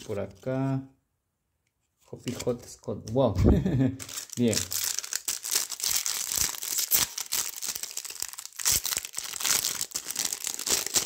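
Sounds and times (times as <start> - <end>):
foil packet crinkling and tearing: 4.0 - 11.0.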